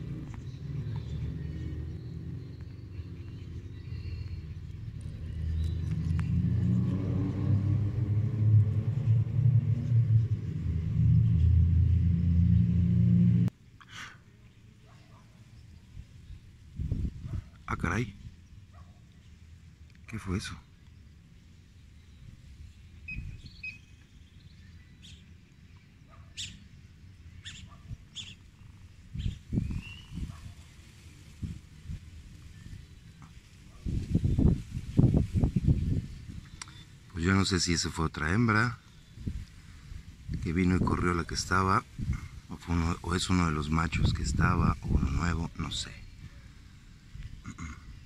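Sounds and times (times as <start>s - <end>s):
loud low rumble: 0.0s - 13.5s
birds chirping: 0.0s - 48.0s.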